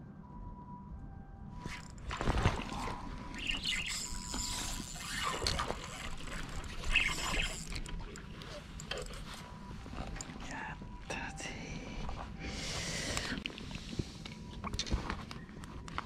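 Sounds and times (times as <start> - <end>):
clothing rustling: 1.7 - 3.4.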